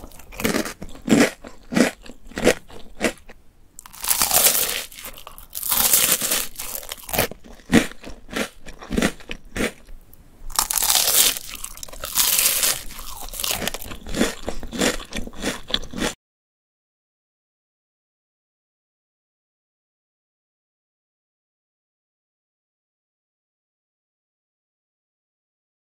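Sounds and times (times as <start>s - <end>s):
crunchy biting and chewing: 0.0s - 16.2s.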